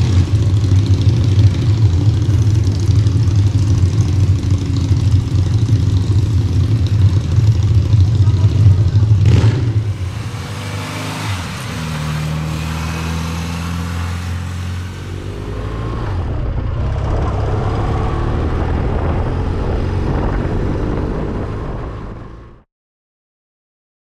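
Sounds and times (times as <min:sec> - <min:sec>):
motorcycle engine accelerating: 0:00.0 - 0:22.7.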